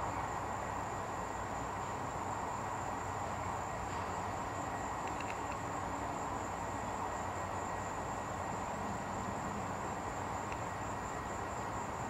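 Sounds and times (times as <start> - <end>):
background hum: 0.0 - 12.0
insect chorus trilling: 0.0 - 12.0.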